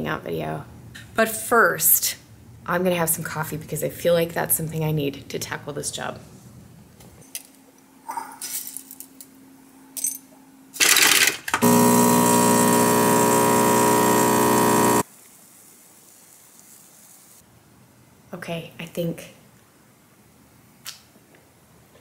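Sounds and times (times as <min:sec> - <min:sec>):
coffee grinder whir: 0:10.8 - 0:15.1
espresso machine hum: 0:11.6 - 0:15.0.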